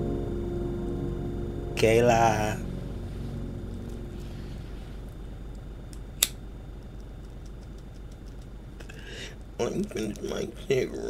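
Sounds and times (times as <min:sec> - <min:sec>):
low room hum: 0:00.0 - 0:11.0
sharp click: 0:05.9 - 0:06.4.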